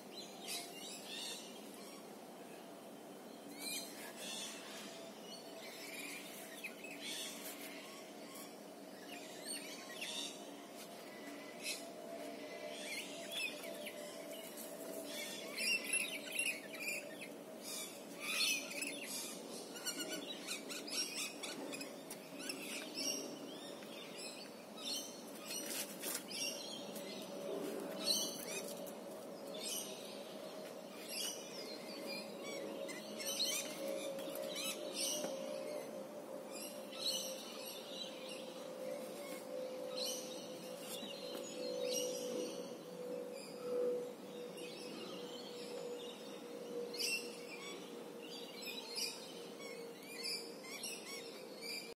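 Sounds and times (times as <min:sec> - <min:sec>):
birds chirping and calling: 0:29.5 - 0:35.8.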